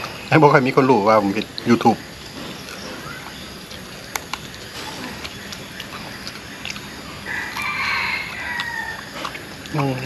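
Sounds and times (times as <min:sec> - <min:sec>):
faint chewing clicks: 0:00.0 - 0:10.0
rooster crowing: 0:07.2 - 0:09.3.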